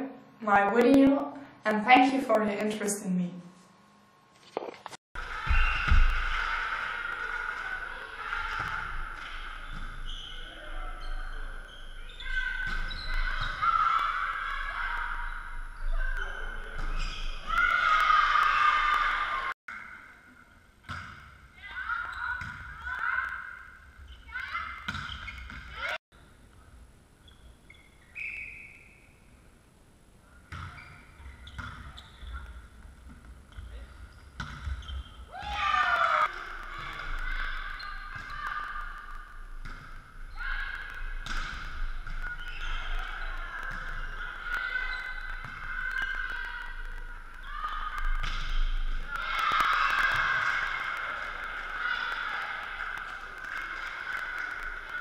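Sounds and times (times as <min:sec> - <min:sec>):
sharp volleyball hits: 0:05.2 - 0:11.4, 0:20.8 - 0:23.8, 0:24.6 - 0:25.9, 0:34.2 - 0:46.7, 0:47.7 - 0:51.5
crowd shouting and cheering: 0:05.2 - 0:20.1, 0:35.3 - 0:39.5, 0:40.1 - 0:55.0
players calling and shouting: 0:05.2 - 0:20.1, 0:20.9 - 0:26.0, 0:33.5 - 0:55.0.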